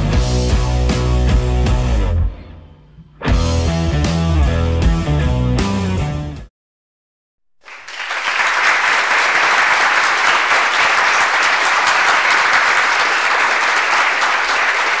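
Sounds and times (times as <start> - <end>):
crowd applause: 7.6 - 15.0.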